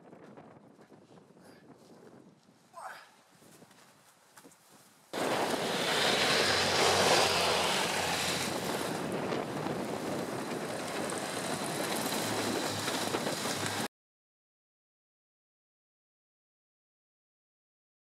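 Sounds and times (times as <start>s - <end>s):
wind on microphone: 0.0s - 2.7s, 5.2s - 13.9s
tracked vehicle over snow: 5.1s - 13.9s.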